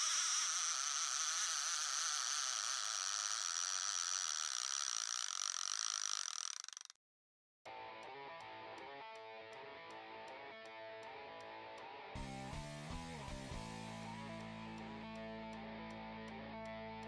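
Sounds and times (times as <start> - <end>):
fishing reel drag buzzing: 0.0 - 7.0.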